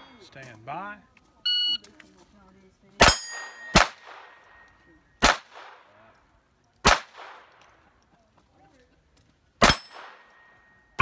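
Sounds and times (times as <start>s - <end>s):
steel plate clanging: 3.0s - 3.8s
pistol shots: 3.0s - 4.4s, 5.2s - 5.9s, 6.8s - 7.6s, 9.6s - 10.4s.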